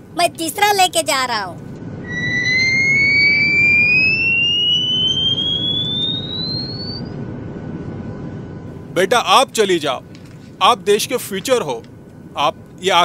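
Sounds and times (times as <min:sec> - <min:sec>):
low rumble: 0:01.6 - 0:08.9
cartoon whistle rising in pitch: 0:02.0 - 0:07.1.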